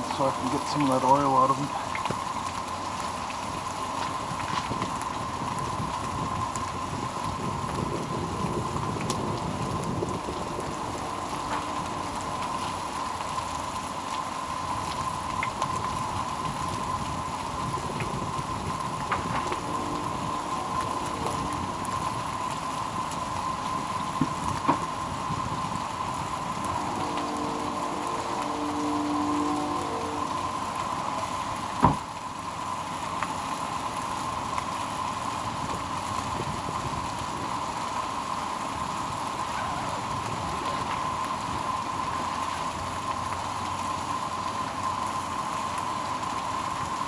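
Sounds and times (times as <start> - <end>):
food sizzling in oil: 0.0 - 32.5
faint steady tone: 9.4 - 13.8, 18.6 - 24.0, 25.7 - 31.8.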